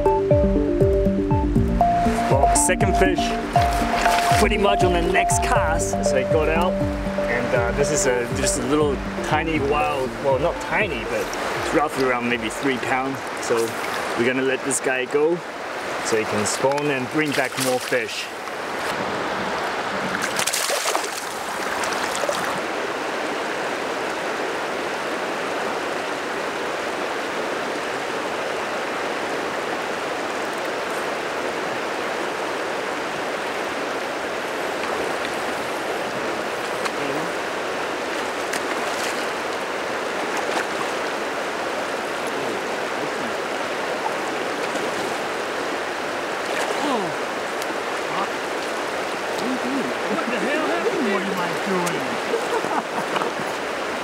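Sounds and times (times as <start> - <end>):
river water rushing over gravel: 1.8 - 54.0
fish splashing: 20.0 - 22.6.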